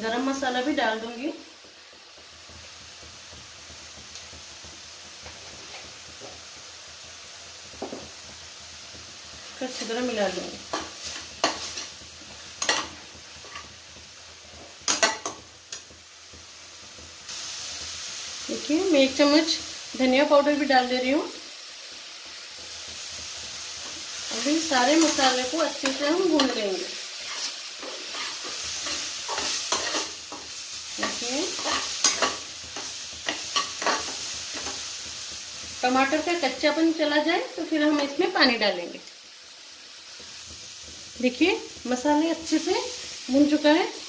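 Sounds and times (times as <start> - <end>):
faint sizzle of frying: 0.0 - 44.0
spatula scraping a pan: 10.7 - 13.8, 22.8 - 35.8
metal spatula scraping metal pan: 27.2 - 34.8.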